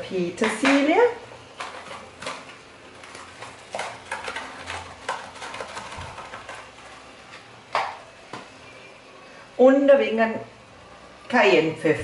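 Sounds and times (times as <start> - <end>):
spice box shaking rattles: 1.6 - 7.1.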